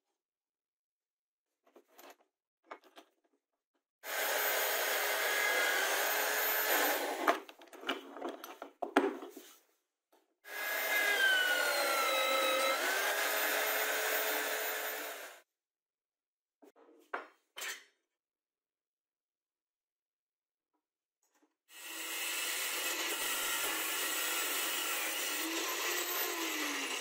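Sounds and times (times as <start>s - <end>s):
drill press motor whine: 10.6s - 15.4s.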